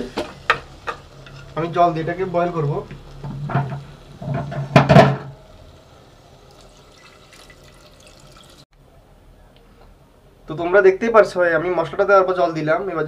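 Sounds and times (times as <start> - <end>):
water splashing into hot pot: 6.4 - 8.7.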